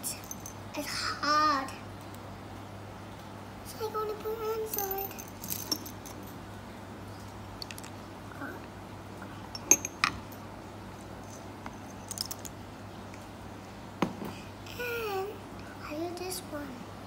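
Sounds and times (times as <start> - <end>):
faint low hum: 0.0 - 17.0.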